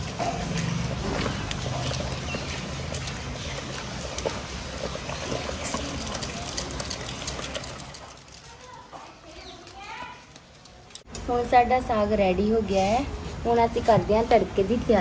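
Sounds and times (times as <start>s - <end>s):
wooden masher squelching in a pot: 0.0s - 11.1s.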